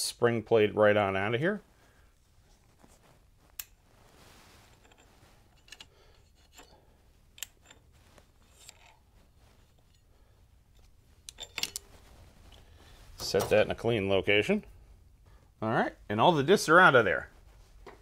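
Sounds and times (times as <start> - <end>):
faint metallic clicks and scraping: 2.4 - 13.7
soft metal clinks: 4.7 - 12.7.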